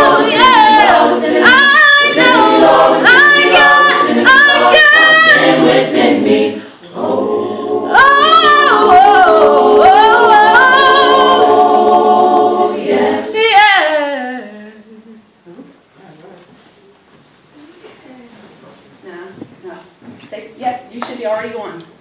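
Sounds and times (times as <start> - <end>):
choir holding sustained chords: 0.0 - 13.4.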